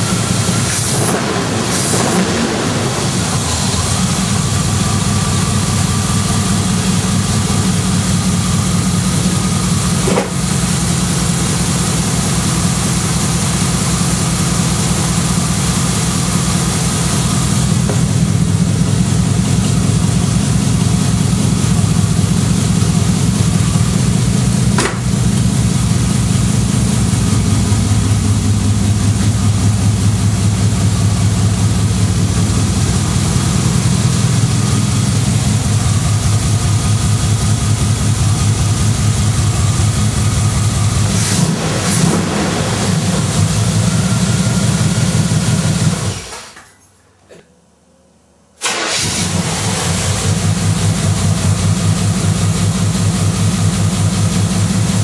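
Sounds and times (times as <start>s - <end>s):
loud lumpy engine idling: 0.0s - 46.3s, 48.7s - 55.0s.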